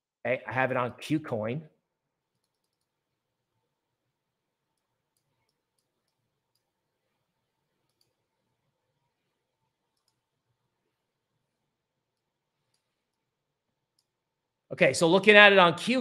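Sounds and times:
computer mouse clicks: 2.3 - 3.0, 4.7 - 6.8, 7.7 - 8.2, 9.9 - 10.3, 12.1 - 13.3, 13.9 - 14.2.

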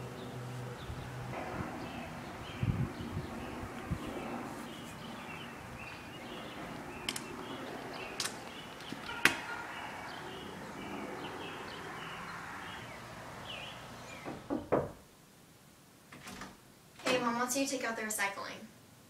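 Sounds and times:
birds chirping: 0.0 - 14.9
outdoor background noise: 0.0 - 19.0
sharp clicks: 7.0 - 7.3.

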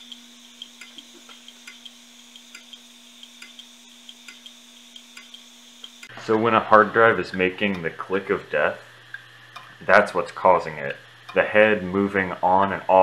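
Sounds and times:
hard drive head ticking: 0.0 - 6.4, 7.3 - 9.9, 10.8 - 11.5
hard drive platter humming: 0.0 - 13.0.

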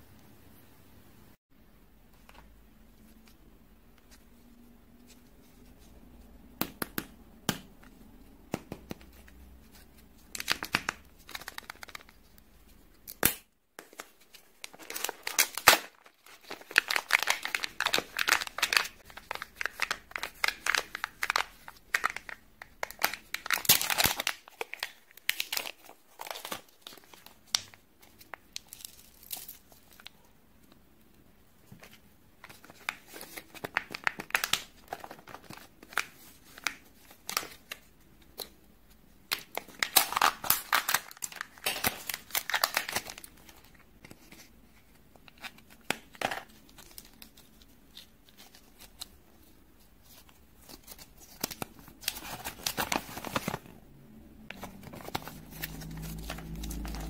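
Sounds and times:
foil wrapper crinkling: 14.6 - 30.1, 39.3 - 44.4, 54.5 - 57.0.

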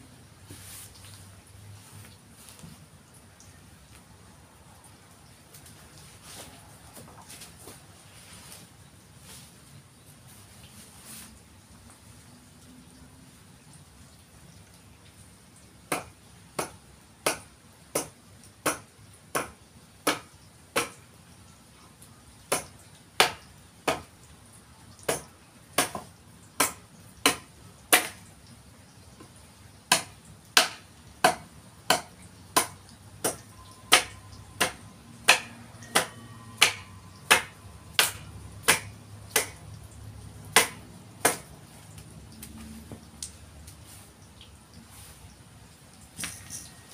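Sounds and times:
hand tool striking wood: 29.9 - 39.6, 40.6 - 41.5.

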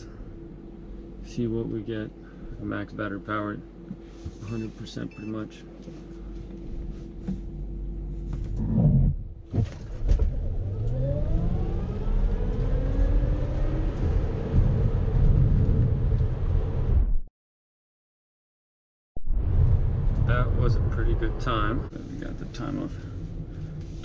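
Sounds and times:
road and wind rumble: 8.4 - 17.2, 19.2 - 24.0
electric motor whine rising: 10.1 - 16.8.

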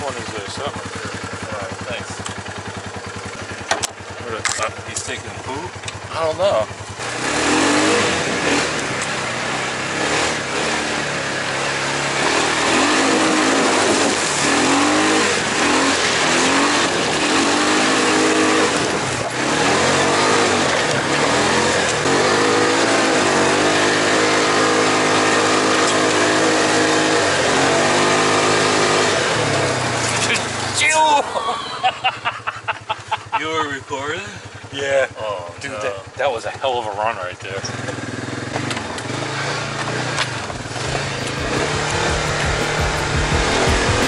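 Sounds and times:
engine revving hard: 4.2 - 31.9, 37.5 - 44.0.

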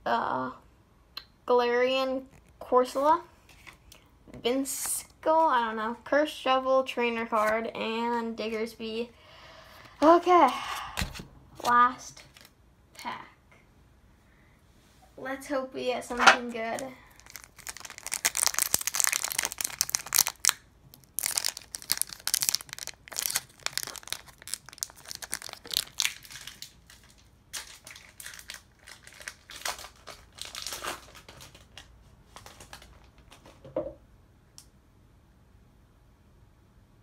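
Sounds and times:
foil wrapper crinkling: 16.7 - 33.5.

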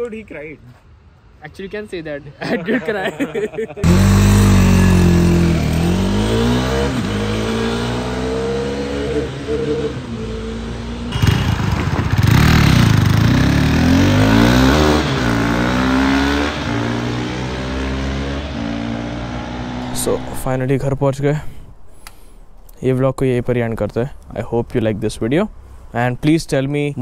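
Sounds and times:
motorcycle engine revving: 3.8 - 20.6
vehicle rushing past: 3.8 - 22.7.

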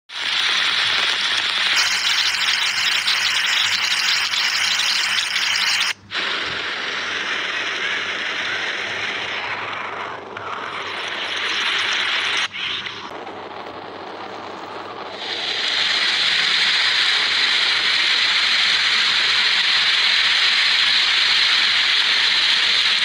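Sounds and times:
heavy rain on muddy ground: 0.1 - 6.0.

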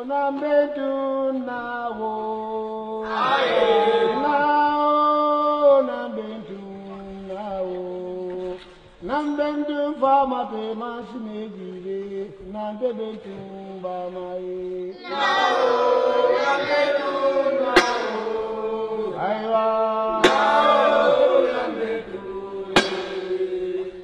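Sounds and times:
group of voices chanting: 3.0 - 4.3, 14.9 - 24.0
sharp strikes: 16.9 - 18.8, 20.2 - 21.6, 22.8 - 24.0.

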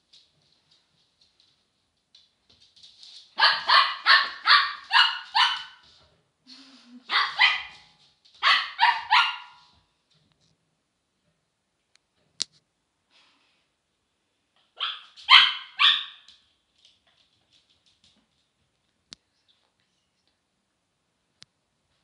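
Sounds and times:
puppy barking in high yaps: 3.4 - 5.8, 7.1 - 9.7, 14.8 - 16.4.

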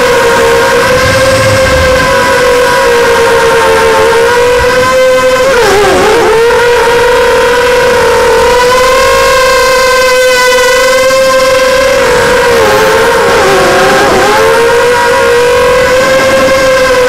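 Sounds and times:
quadcopter motors whining: 0.6 - 3.4.

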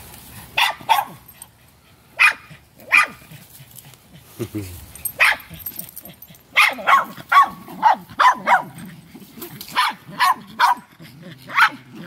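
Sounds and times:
small dogs barking: 0.5 - 1.5, 2.1 - 3.4, 5.0 - 12.0.

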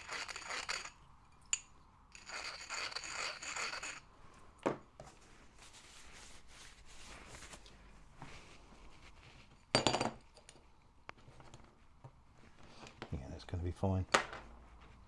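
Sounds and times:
metal parts rubbing and scraping: 0.0 - 1.0, 2.1 - 4.1.

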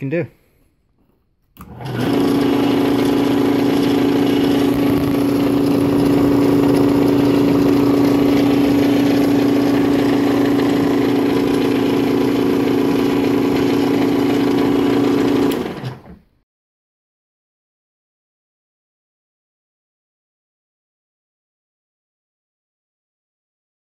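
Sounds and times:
electric motor humming: 1.6 - 16.2.

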